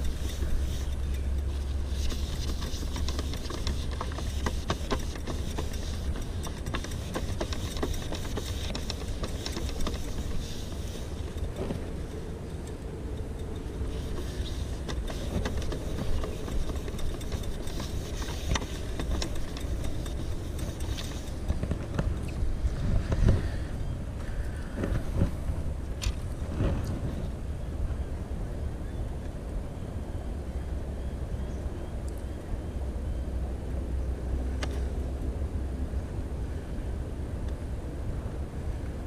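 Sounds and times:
rag wiping a tray: 0.0s - 11.5s, 13.9s - 21.6s
distant road traffic rumble: 0.0s - 39.0s.

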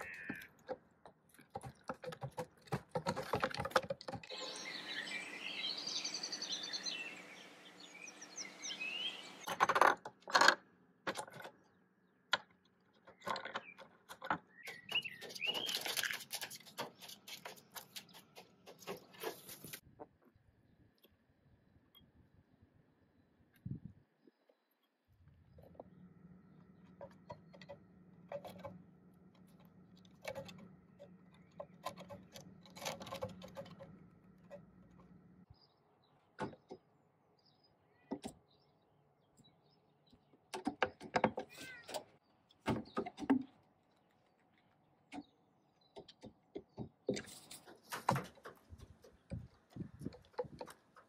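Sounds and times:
bird feet tapping on wood: 0.0s - 4.3s.

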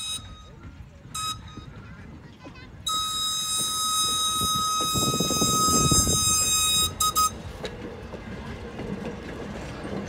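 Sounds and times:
train whistle blasts: 0.0s - 0.5s, 1.1s - 1.7s, 2.9s - 7.4s
train coaches rumbling: 0.0s - 10.0s.

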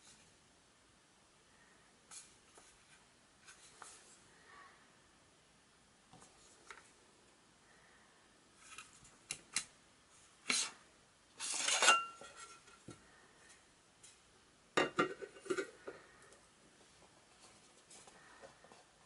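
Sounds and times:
metal tray sliding with scrape: 11.4s - 12.6s.

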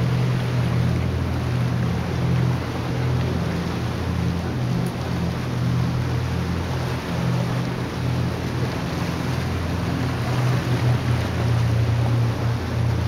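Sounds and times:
motorboat engine hum: 0.0s - 13.0s
small waves washing: 0.0s - 13.0s
wind: 0.0s - 13.0s.

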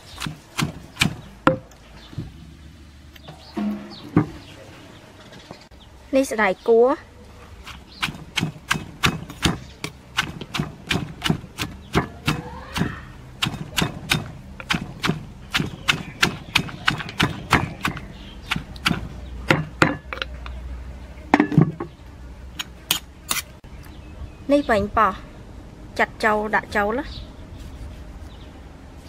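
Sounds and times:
wooden pestle pounding in mortar: 0.2s - 1.7s, 7.7s - 20.1s.

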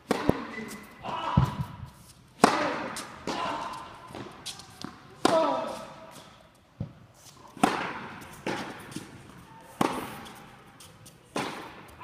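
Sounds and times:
tennis ball pops in echoing hall: 0.0s - 1.8s, 2.4s - 5.7s, 7.6s - 8.8s, 9.8s - 10.3s, 11.3s - 12.0s.

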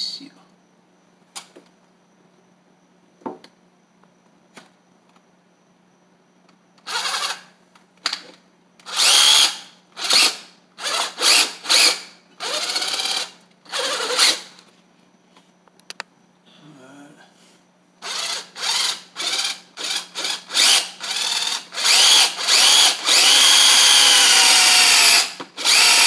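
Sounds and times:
cordless drill bursts: 6.8s - 7.5s, 8.8s - 14.5s, 18.0s - 26.0s.

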